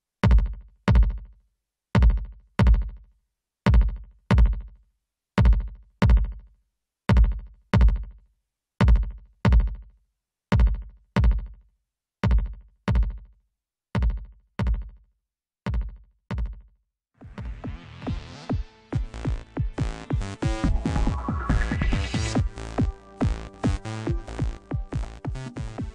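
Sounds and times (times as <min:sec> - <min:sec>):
electronic kick drum hits: 0:17.2 - 0:25.9.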